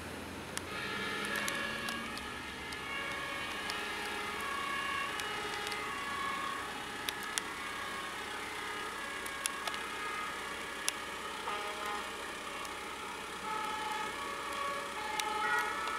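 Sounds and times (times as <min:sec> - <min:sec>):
street traffic: 0:00.0 - 0:15.9
sharp clicks: 0:00.5 - 0:10.2, 0:13.6 - 0:15.9
faint two-tone siren: 0:00.6 - 0:15.9.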